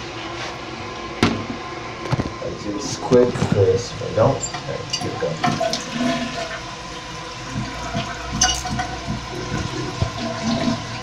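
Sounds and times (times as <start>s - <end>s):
toilet tank refilling: 4.3s - 11.0s.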